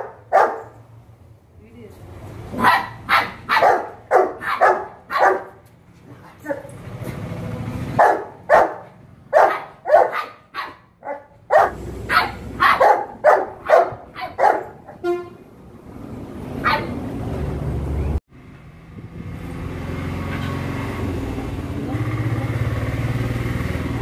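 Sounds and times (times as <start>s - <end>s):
puppy barking: 0.0s - 0.8s, 2.5s - 5.6s, 8.0s - 15.0s, 16.6s - 17.0s.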